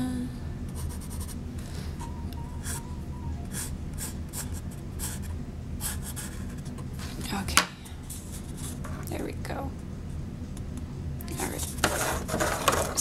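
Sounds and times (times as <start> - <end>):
steady low hum: 0.0 - 13.0
pencil scratching on paper cup: 0.8 - 1.4, 3.5 - 6.7.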